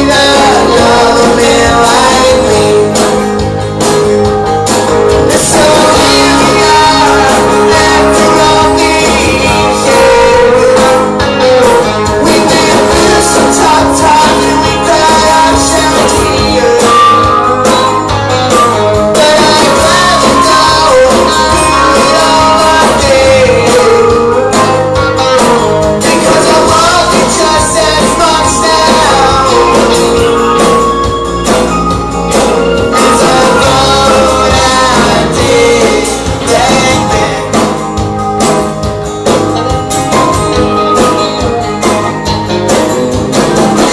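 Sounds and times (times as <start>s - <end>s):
man singing into a microphone: 0.0s - 3.5s, 5.1s - 30.9s, 32.7s - 38.2s
acoustic and electric guitars: 0.0s - 43.9s
drums: 0.0s - 43.9s.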